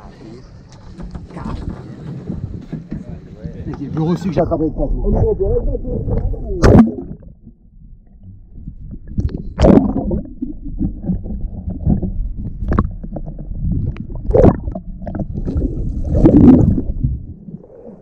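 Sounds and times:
water splashing around a boat: 0.0 - 4.6
steady low rumble: 4.4 - 18.0.

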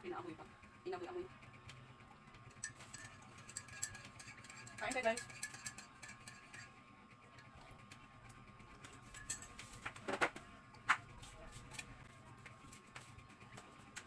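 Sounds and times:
faint steady hum: 0.0 - 14.0
spoon clinking in ceramic mug: 2.6 - 6.7, 9.1 - 9.6
spoon knocks and clatters: 2.6 - 6.7.

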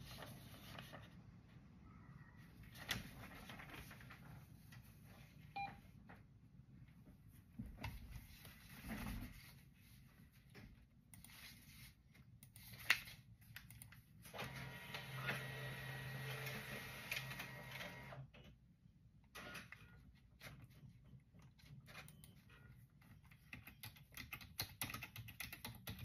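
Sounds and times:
paper sheets shuffled: 0.0 - 1.2, 2.6 - 5.2
printer humming: 14.4 - 18.2
keyboard and mouse clicks: 23.2 - 26.0.

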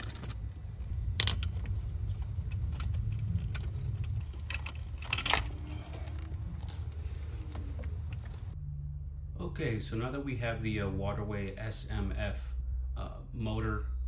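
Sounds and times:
small metallic clicks and rattles: 0.0 - 8.6
low rumble: 0.0 - 14.0.

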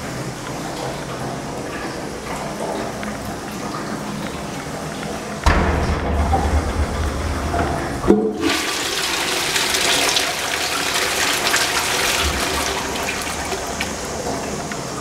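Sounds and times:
toilet flush water rushing: 7.1 - 15.0.

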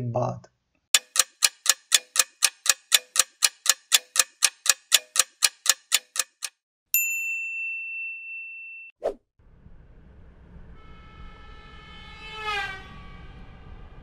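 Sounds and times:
clock ticking: 1.0 - 6.6
bright ding: 7.0 - 8.9.

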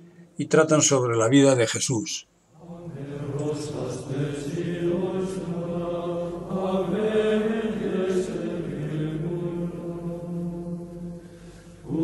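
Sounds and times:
voices singing slow chant: 2.5 - 12.0.

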